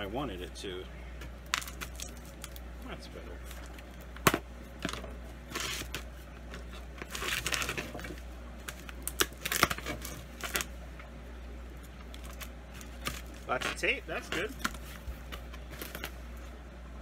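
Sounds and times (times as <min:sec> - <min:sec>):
tape tearing off cardboard: 0:03.7 - 0:10.7, 0:12.2 - 0:16.1
scissors cutting packing tape: 0:08.7 - 0:10.7.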